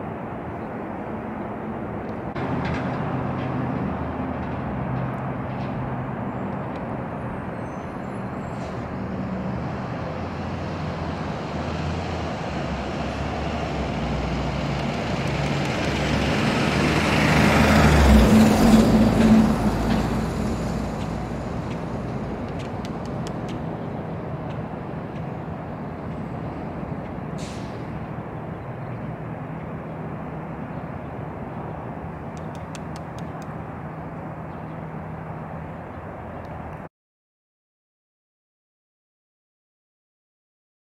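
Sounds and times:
low traffic hum: 0:00.0 - 0:36.9
vehicle passing: 0:08.2 - 0:36.7.

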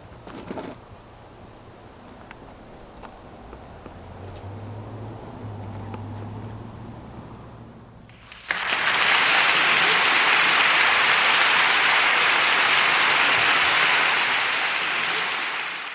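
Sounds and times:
crowd applause: 0:08.1 - 0:15.9.

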